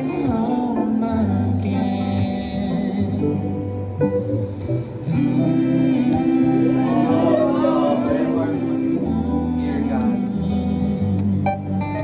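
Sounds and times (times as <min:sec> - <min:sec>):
man singing: 0:00.0 - 0:04.0, 0:05.0 - 0:11.4
acoustic guitar: 0:00.0 - 0:12.0
woman singing: 0:05.1 - 0:11.1.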